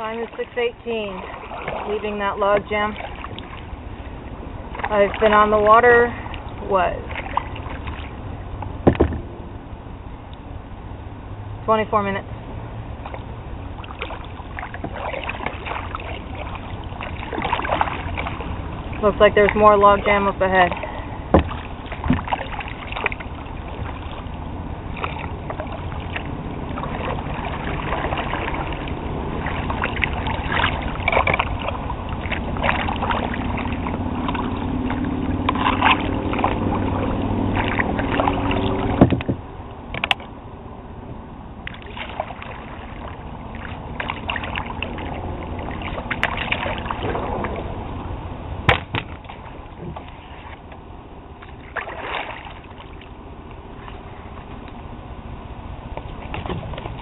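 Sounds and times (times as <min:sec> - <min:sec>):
paddle splashing water: 0:00.0 - 0:09.4, 0:12.9 - 0:40.4, 0:41.6 - 0:57.0
knocks against kayak hull: 0:08.8 - 0:09.3, 0:21.3 - 0:22.4, 0:39.0 - 0:40.2, 0:48.7 - 0:49.2.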